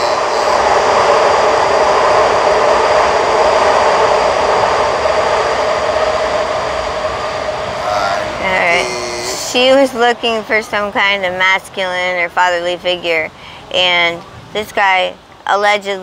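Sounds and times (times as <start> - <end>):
vehicle passing by: 5.3 - 11.8.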